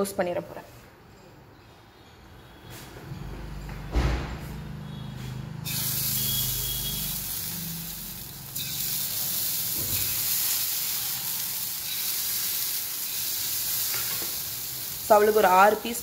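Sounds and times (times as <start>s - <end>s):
food frying sizzle: 5.6s - 16.0s.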